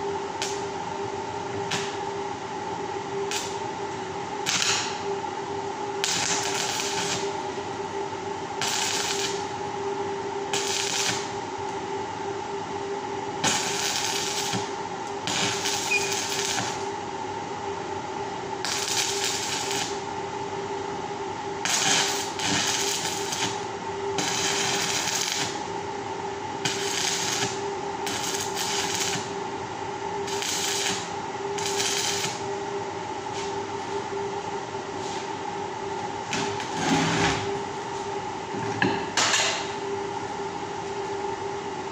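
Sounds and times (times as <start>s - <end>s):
steady hum: 0.0s - 41.9s
arc welding crackling and hissing: 0.3s - 0.8s, 1.6s - 2.2s, 3.2s - 3.7s, 4.4s - 5.2s, 6.0s - 7.8s, 8.5s - 9.8s, 10.5s - 11.8s, 13.3s - 17.0s, 18.4s - 20.2s, 21.6s - 29.6s, 30.2s - 32.5s, 36.2s - 38.0s.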